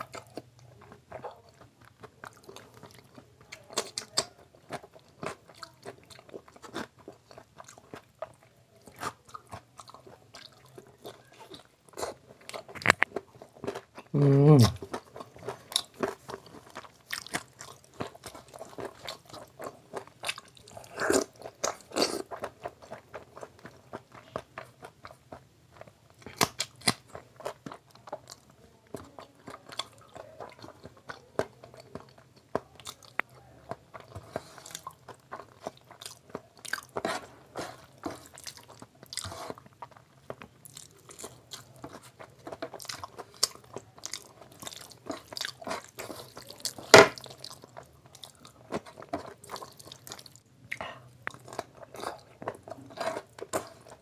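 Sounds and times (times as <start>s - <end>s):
man chewing and mouth smacks: 0.0s - 54.0s.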